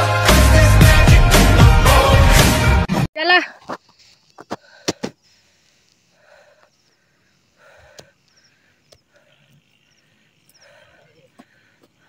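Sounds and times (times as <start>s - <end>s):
person breathing heavily: 4.5s - 12.0s.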